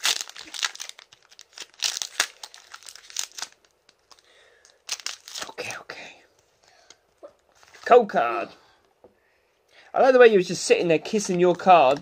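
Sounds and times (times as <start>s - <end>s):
foil wrapper tearing and crinkling: 0.0s - 5.6s.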